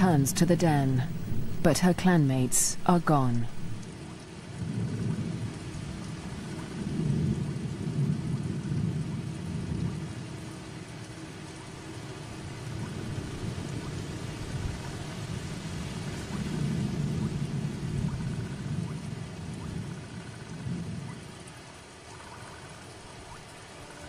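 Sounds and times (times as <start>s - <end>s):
heavy rain: 0.0s - 24.0s.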